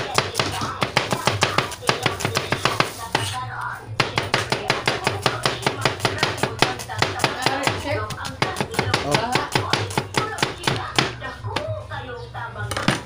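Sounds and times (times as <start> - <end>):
knife slicing onion on cutting board: 0.0 - 3.4.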